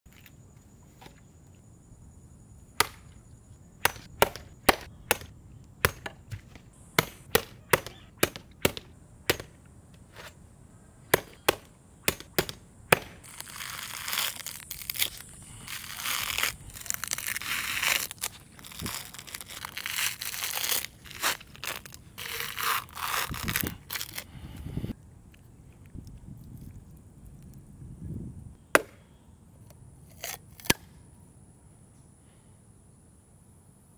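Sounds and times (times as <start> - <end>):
machete chopping coconut husk: 2.8 - 3.0, 3.8 - 9.6, 11.1 - 24.2, 28.8 - 29.0, 30.1 - 30.8
coconut fibres tearing: 11.2 - 24.4, 30.1 - 30.8.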